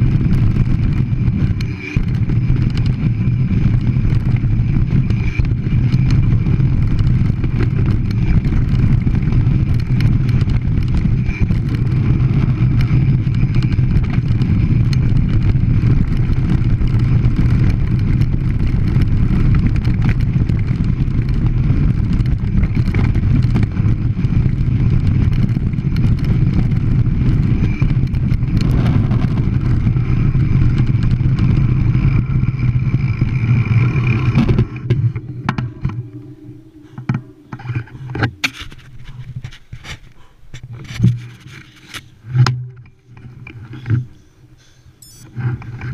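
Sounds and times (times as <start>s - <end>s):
bike rattling and knocking: 0.0s - 36.2s
wind and tyre rumble: 0.0s - 45.9s.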